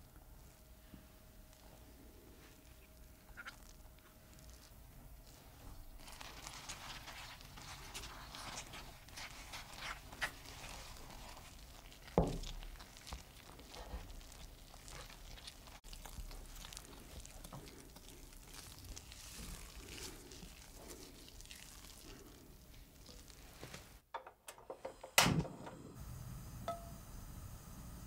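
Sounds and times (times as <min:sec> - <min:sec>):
spatula squelching in batter: 0:01.5 - 0:23.6.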